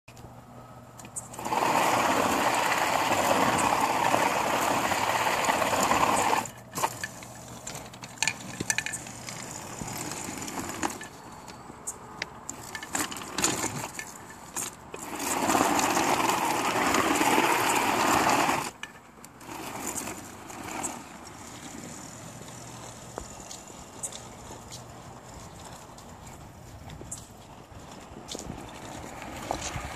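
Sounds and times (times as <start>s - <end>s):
clicks and rattles: 6.3s - 11.2s.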